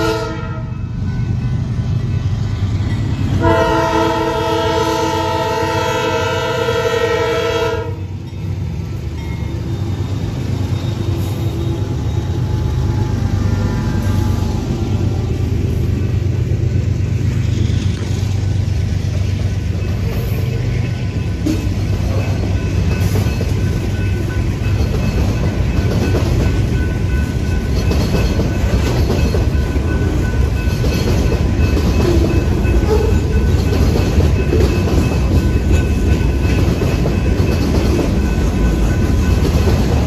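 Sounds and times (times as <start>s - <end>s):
freight train rumbling past: 0.0s - 40.0s.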